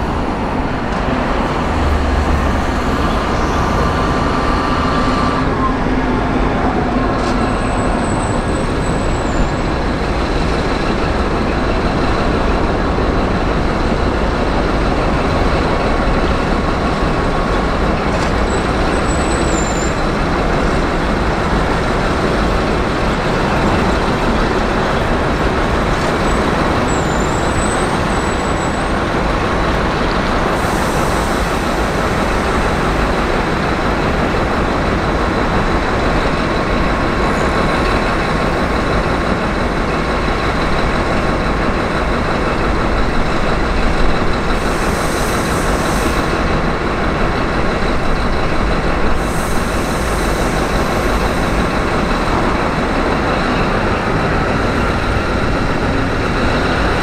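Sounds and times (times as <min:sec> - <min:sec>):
rail traffic rumbling: 0:00.0 - 0:57.0
short air hisses: 0:44.6 - 0:46.3.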